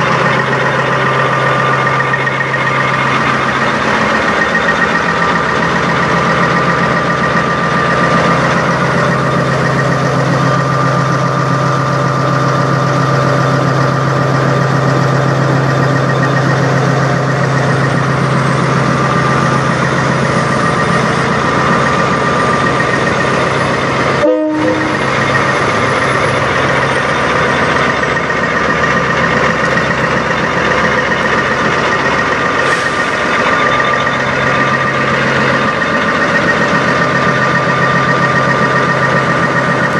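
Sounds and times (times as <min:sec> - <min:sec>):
truck diesel engine idling: 0:00.0 - 0:39.9.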